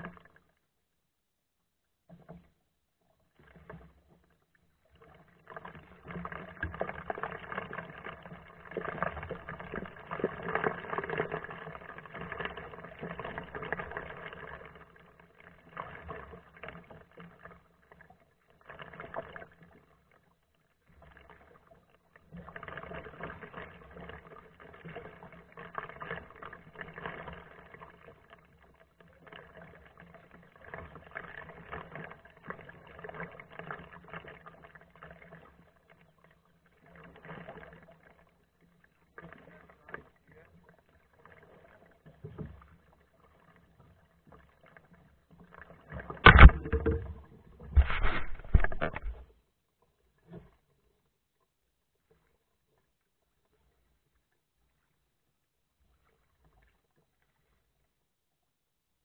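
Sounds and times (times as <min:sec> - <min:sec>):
kayak paddle splashing: 0:22.2 - 0:49.3.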